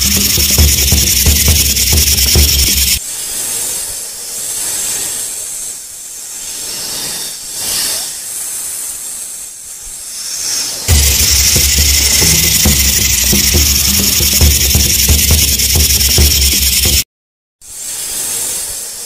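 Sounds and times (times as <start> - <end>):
music with heavy bass beat: 0.0 - 3.0, 10.9 - 17.0.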